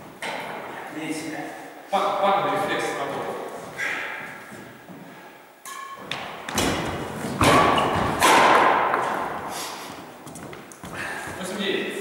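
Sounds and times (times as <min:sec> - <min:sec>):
rackets hitting shuttlecock: 0:05.6 - 0:09.5.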